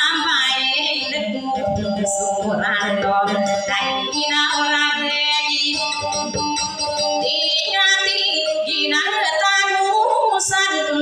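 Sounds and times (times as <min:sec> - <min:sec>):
woman singing: 0:00.0 - 0:11.0.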